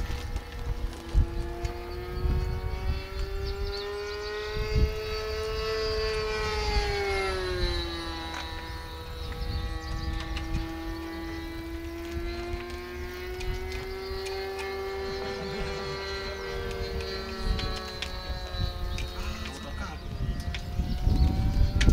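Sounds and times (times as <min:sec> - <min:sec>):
model aircraft engine buzzing: 0:00.0 - 0:21.9.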